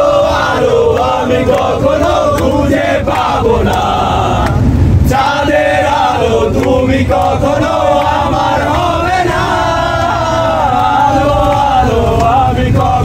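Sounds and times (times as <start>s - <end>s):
bus engine and road rumble: 0.0s - 13.0s
young men chanting and singing: 0.0s - 13.0s.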